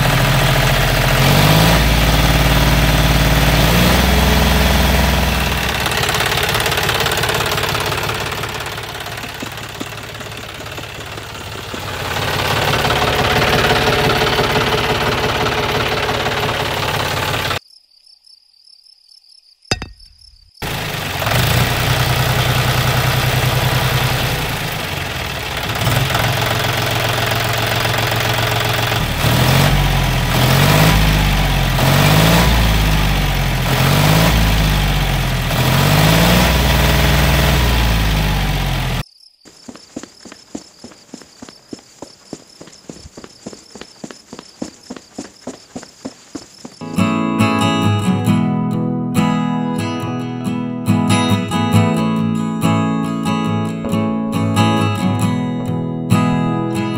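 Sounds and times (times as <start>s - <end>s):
diesel tractor engine running: 0.0s - 17.6s, 20.6s - 39.0s, 39.6s - 46.8s.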